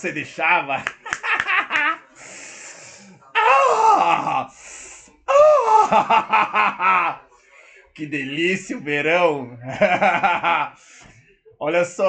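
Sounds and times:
breathy hissing exhales: 2.2s - 3.2s, 4.5s - 5.3s
man wailing high-pitched cries: 3.4s - 4.4s, 5.3s - 6.1s.

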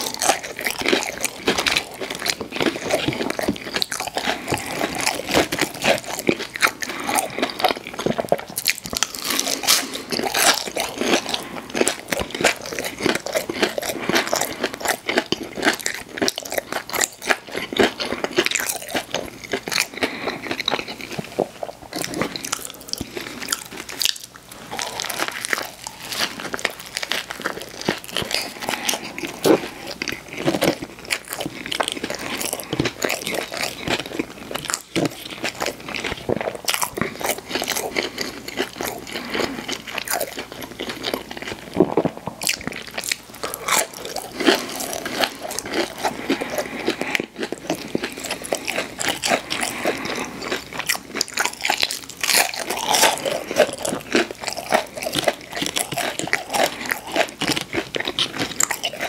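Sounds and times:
person crunching fried food: 0.0s - 59.0s.

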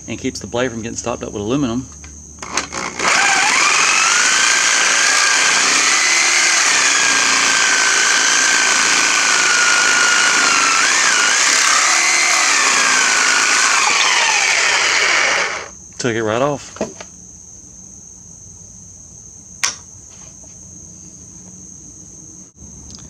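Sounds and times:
reciprocating saw cutting metal: 2.4s - 15.7s.

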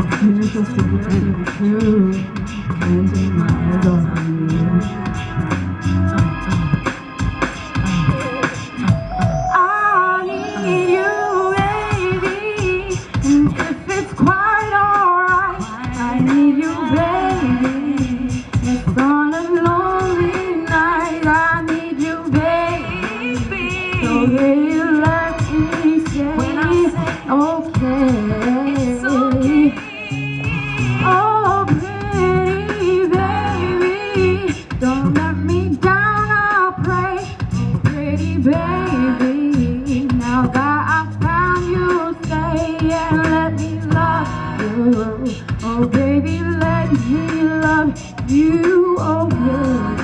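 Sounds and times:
backing music with a steady beat: 0.0s - 50.0s
girl singing into a microphone: 9.5s - 50.0s.

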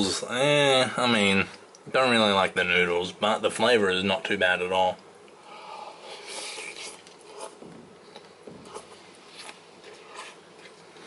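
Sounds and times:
fork clicks and scrapes: 6.3s - 10.8s.

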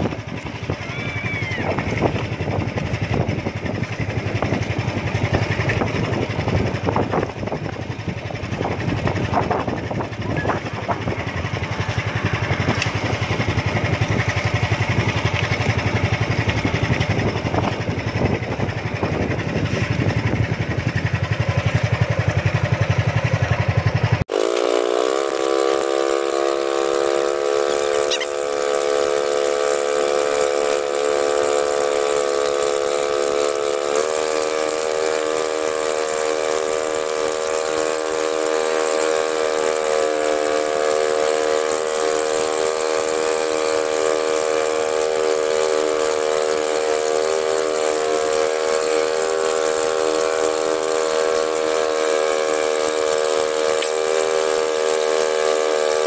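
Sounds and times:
small engine running: 0.0s - 56.0s
drone of held pitches: 24.3s - 34.1s.

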